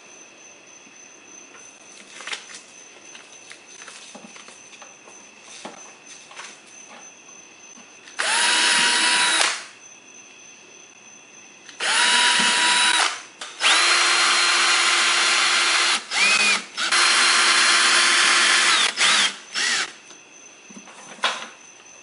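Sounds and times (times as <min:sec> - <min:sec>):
cordless drill motor whine: 0:08.2 - 0:09.7, 0:11.7 - 0:20.0.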